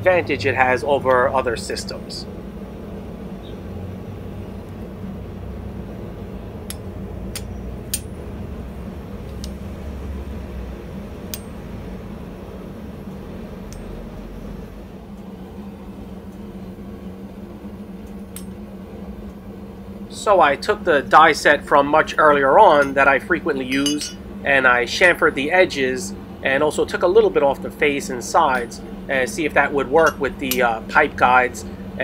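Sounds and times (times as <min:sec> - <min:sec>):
steady low hum: 0:00.0 - 0:32.0
steel tool parts clinking: 0:23.7 - 0:24.2.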